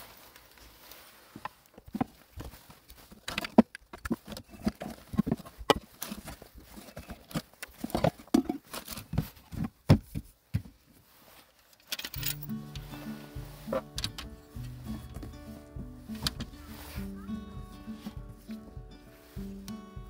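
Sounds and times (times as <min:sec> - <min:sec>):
gear rummaged and knocking: 0:11.8 - 0:12.9.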